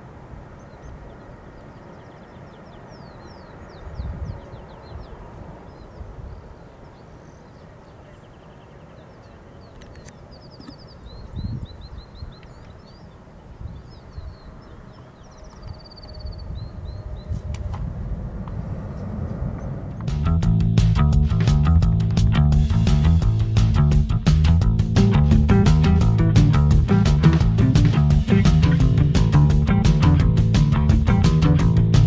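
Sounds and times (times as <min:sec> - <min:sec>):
small birds chirping: 0:00.0 - 0:17.6
wind gusts on microphone: 0:00.0 - 0:22.3
steady low rumble: 0:13.6 - 0:32.0.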